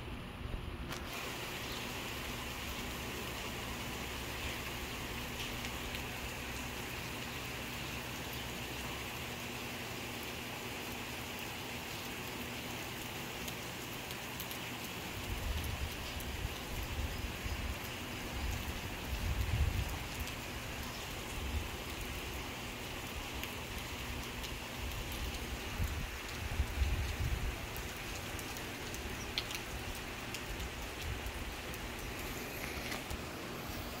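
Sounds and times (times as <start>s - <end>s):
steady rain hiss: 0.0s - 34.0s
raindrop ticks: 4.3s - 7.3s, 11.4s - 33.3s.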